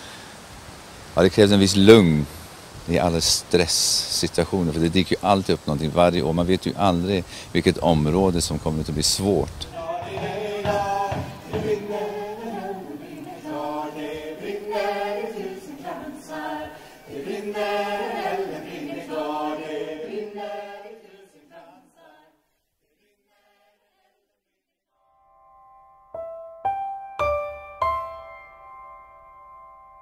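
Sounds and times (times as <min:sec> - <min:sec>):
choir singing a cappella: 0:09.7 - 0:24.6
soft keyboard notes: 0:25.4 - 0:30.0.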